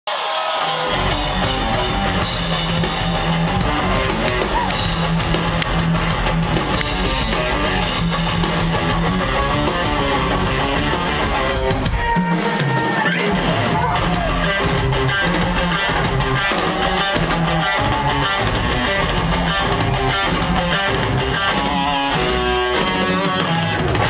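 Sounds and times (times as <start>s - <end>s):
drums: 0.1s - 24.0s
electric guitars: 0.1s - 24.0s
bass line: 0.8s - 12.2s.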